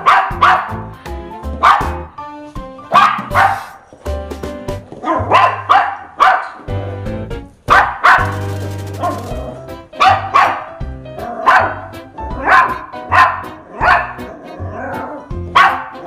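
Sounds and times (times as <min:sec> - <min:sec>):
puppy barking sharply: 0:00.0 - 0:00.8, 0:01.6 - 0:02.1, 0:02.9 - 0:03.8, 0:05.0 - 0:06.7, 0:07.7 - 0:08.4, 0:10.0 - 0:14.3, 0:15.5 - 0:16.0
background music: 0:00.0 - 0:16.0.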